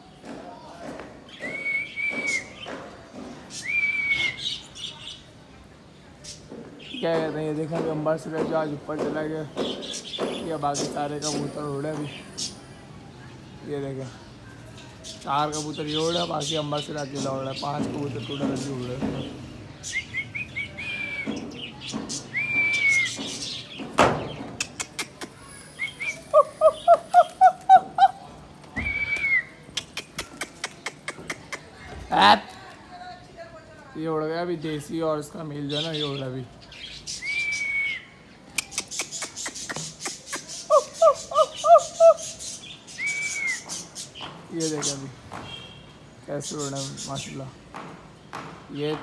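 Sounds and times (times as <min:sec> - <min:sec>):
small birds chirping: 0:00.0 - 0:49.0
high bird whistle: 0:01.3 - 0:02.7, 0:03.6 - 0:04.6, 0:19.9 - 0:21.4, 0:22.3 - 0:23.2, 0:28.8 - 0:29.6, 0:37.1 - 0:38.2, 0:40.4 - 0:44.0
sharp clicks: 0:38.6 - 0:40.2.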